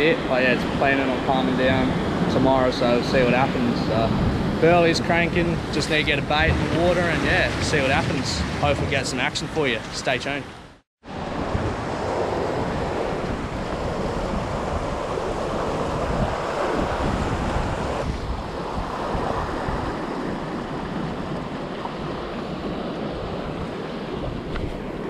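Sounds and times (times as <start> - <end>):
surf breaking over rocks: 0.0 - 10.4
wind gusting across microphone: 0.0 - 25.0.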